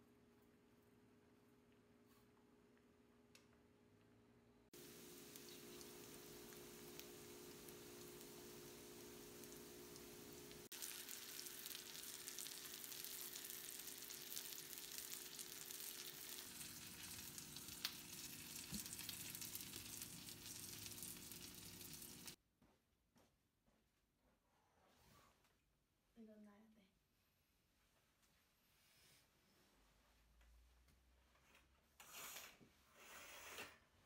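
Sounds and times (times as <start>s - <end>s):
cutlets sizzling in oil: 4.8s - 22.4s.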